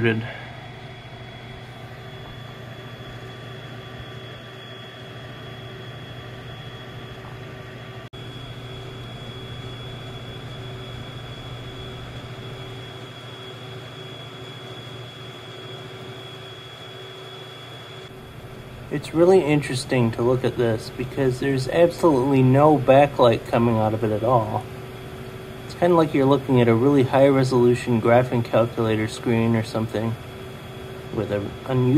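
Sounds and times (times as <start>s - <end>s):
projector hum and air rush: 0.0s - 31.9s
thin high whine: 0.0s - 31.9s.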